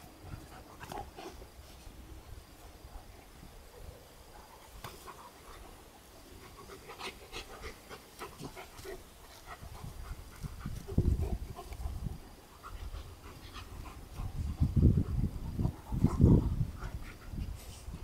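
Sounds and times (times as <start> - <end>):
snuffly dog play noises: 0.0 - 2.0, 2.6 - 18.0
dogs panting: 4.4 - 18.0.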